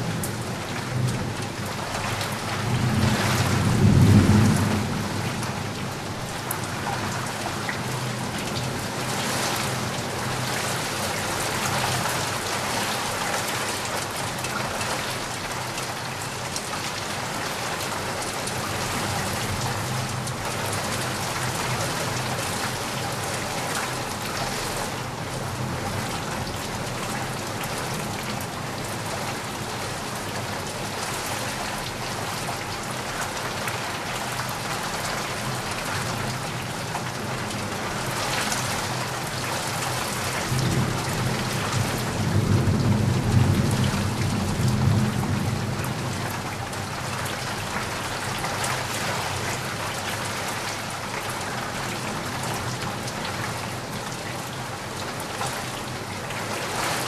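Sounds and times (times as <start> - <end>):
steady rain pouring: 0.0 - 57.0
low rumble of thunder: 0.1 - 8.2, 40.3 - 47.4.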